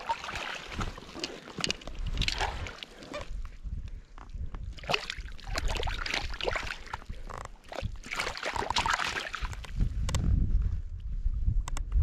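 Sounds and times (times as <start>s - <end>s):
water sloshing and splashing: 0.0s - 3.6s, 4.4s - 9.8s.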